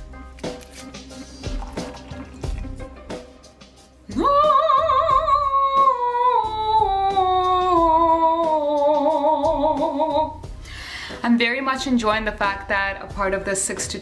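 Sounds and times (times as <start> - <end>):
woman singing operatic scales: 4.1 - 10.4.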